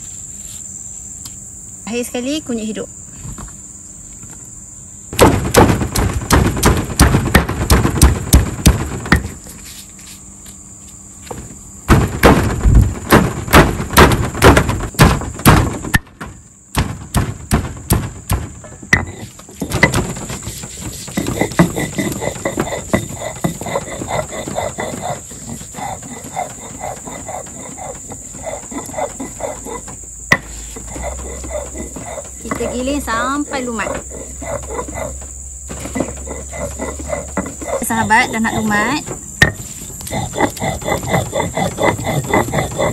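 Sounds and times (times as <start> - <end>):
insects buzzing: 0.0 - 42.9
stone roller knocking on slab: 5.2 - 9.4, 11.3 - 42.9
stone roller grinding strokes: 19.0 - 42.9.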